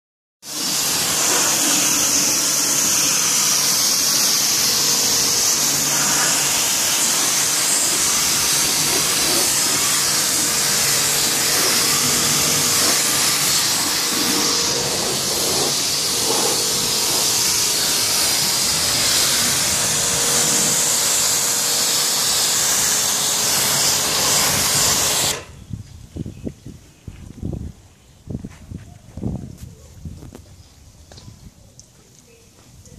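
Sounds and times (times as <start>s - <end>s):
water spraying on car body: 0.4s - 25.4s.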